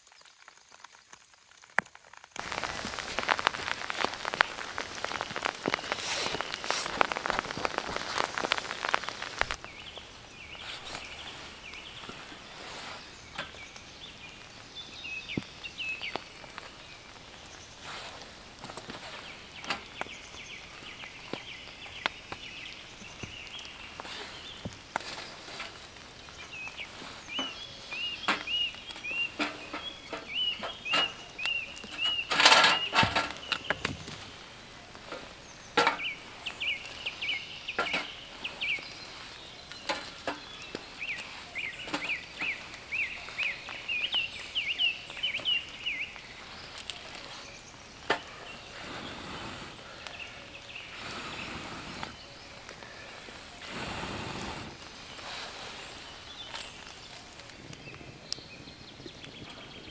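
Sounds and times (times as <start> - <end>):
dry sticks snapping: 1.6 - 12.5
bird high chirps: 26.3 - 33.9, 35.5 - 53.4.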